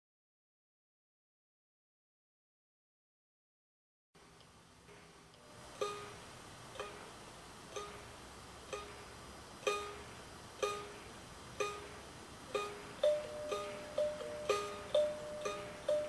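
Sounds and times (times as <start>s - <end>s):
kalimba note plucked: 12.6s - 16.0s.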